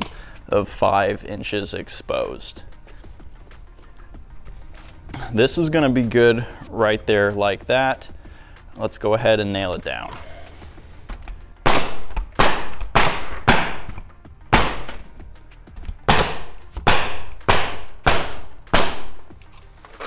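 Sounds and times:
nail gun firing: 11.6s - 15.0s, 16.1s - 19.2s.

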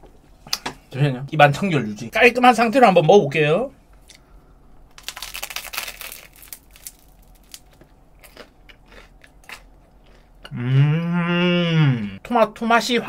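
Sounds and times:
crunchy bread chewing: 4.9s - 10.6s.

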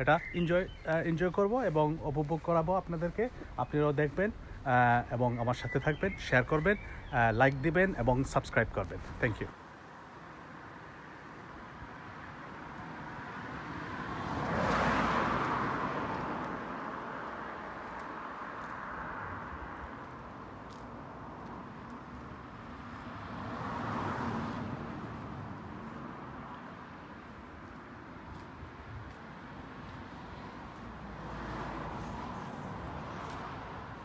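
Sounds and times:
distant traffic: 0.0s - 34.0s
car passing by: 10.6s - 34.0s.

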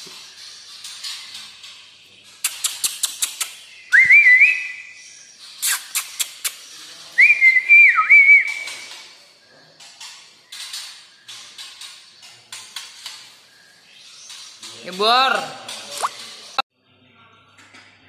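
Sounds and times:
bird sharp clicking notes: 2.4s - 4.6s, 5.6s - 6.7s
bird singing whistled phrases: 3.7s - 6.3s, 7.2s - 9.0s.

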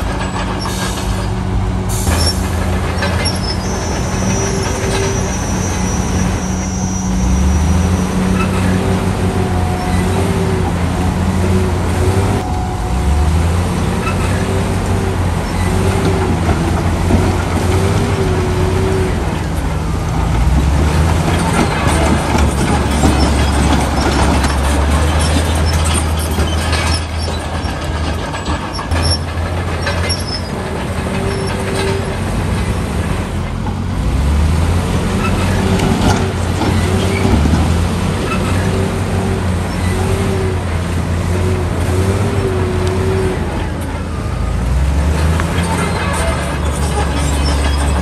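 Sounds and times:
heavy diesel machinery engine rumble: 0.0s - 48.0s
faint higher tone: 12.4s - 14.1s.

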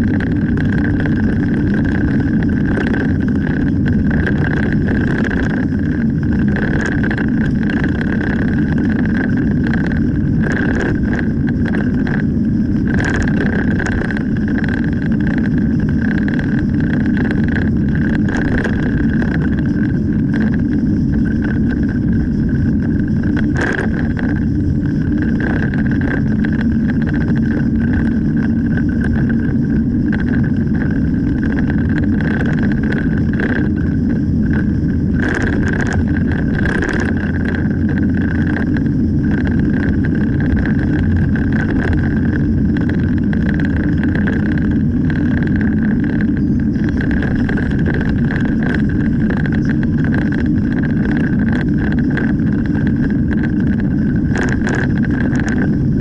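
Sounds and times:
car engine and tyre drone: 0.0s - 56.0s.

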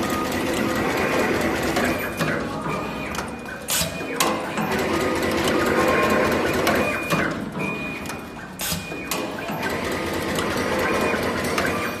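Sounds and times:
cable crimping machine whirring and clattering: 0.0s - 12.0s.

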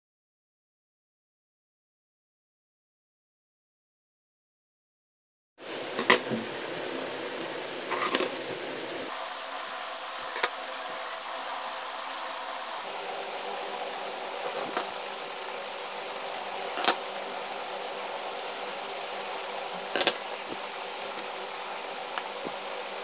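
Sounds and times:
background hum and hiss: 5.6s - 23.0s.

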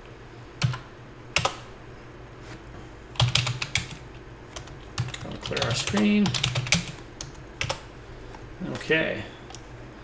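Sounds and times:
keyboard typing: 3.2s - 7.9s.

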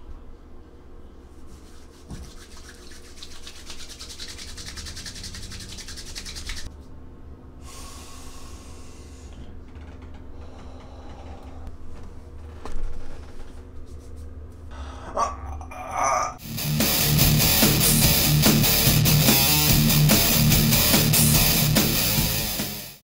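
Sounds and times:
hands rubbing over face: 1.3s - 6.9s, 13.3s - 14.6s
hands rubbing together: 1.3s - 6.9s, 13.8s - 14.6s.

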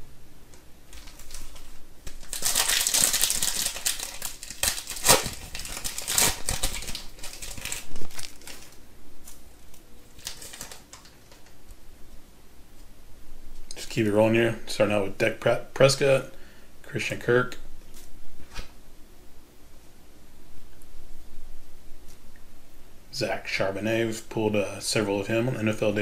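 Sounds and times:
foil wrapper tearing and crinkling: 0.9s - 11.6s
sharp foil snaps: 0.9s - 11.6s.

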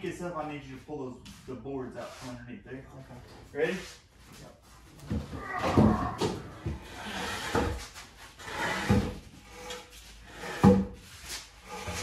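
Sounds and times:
wooden boards knocking and scraping: 5.0s - 9.7s, 10.3s - 11.0s.

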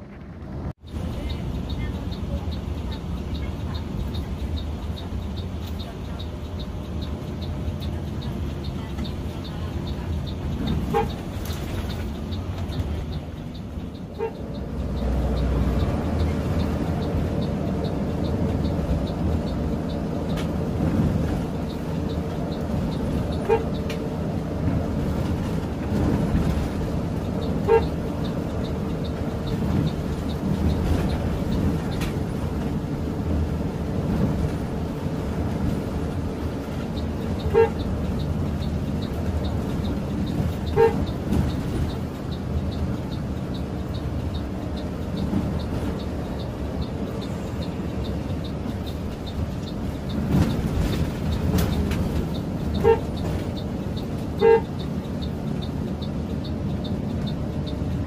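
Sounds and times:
coach engine and road noise: 0.0s - 58.0s
horn toots: 37.5s - 37.8s, 40.7s - 41.1s, 52.8s - 53.1s, 54.4s - 54.8s.

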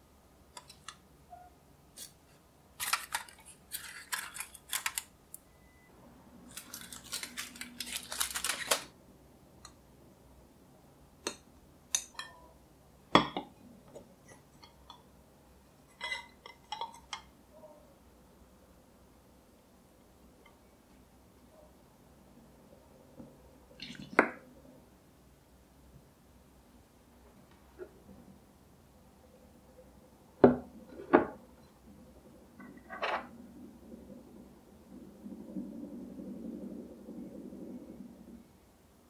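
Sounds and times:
rustling: 6.5s - 8.9s.

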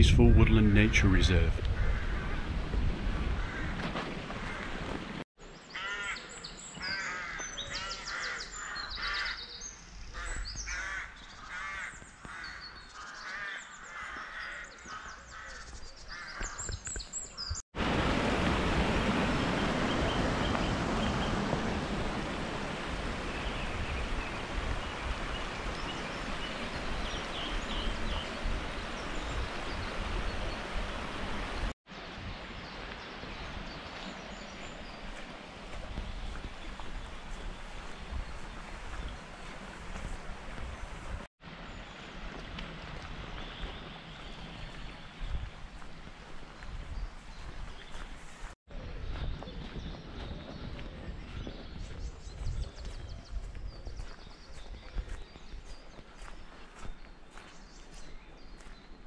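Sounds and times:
woodland birds calling: 5.6s - 17.6s, 22.8s - 31.6s, 48.8s - 59.0s.

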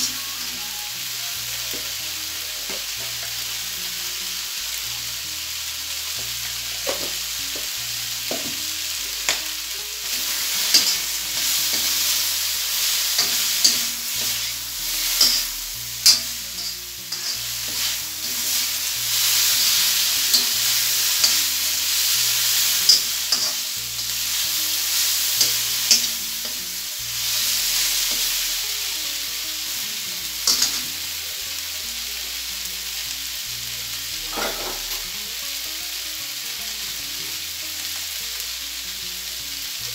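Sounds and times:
meat sizzling in a wok: 0.0s - 39.9s
metal spoon scraping a pan: 10.0s - 28.7s, 30.4s - 31.0s, 34.3s - 35.1s.

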